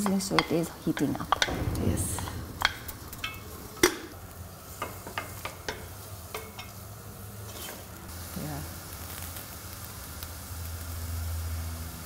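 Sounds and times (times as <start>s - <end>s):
onions sizzling in butter: 4.4s - 12.0s.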